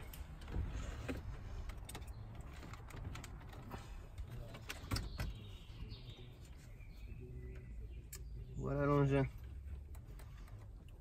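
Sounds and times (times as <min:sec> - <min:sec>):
plastic and metal clicks and knocks: 0:01.1 - 0:05.4.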